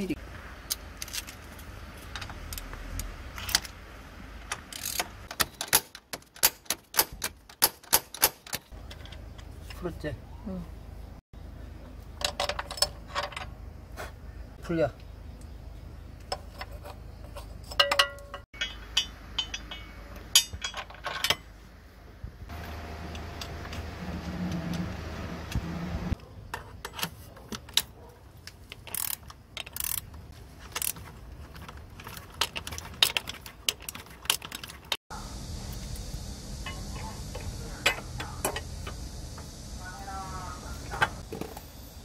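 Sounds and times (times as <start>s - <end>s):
metal hand tools clinking: 16.3s - 21.6s
socket ratchet clicking: 28.7s - 31.0s.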